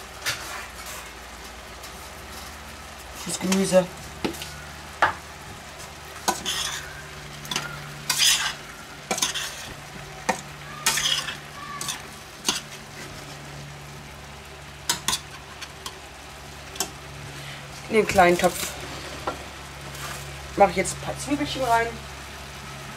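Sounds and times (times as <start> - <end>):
vegetables sizzling in butter: 0.0 - 22.9
metal spoon scraping a pot: 6.2 - 9.7, 10.3 - 13.2, 18.4 - 20.2.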